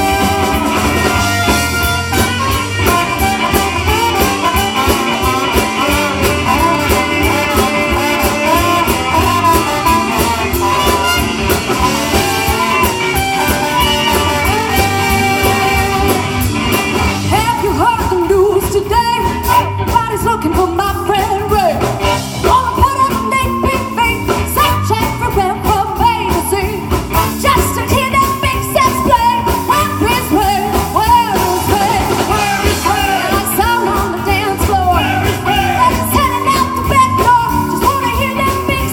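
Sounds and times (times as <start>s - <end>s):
live swing soul band: 0.0s - 38.9s
woman singing lead vocal: 17.3s - 38.9s.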